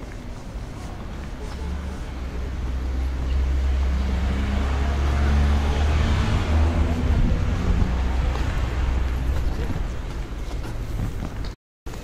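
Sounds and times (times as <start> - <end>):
car driving past: 2.4 - 11.0
steady low rumble: 5.6 - 11.4.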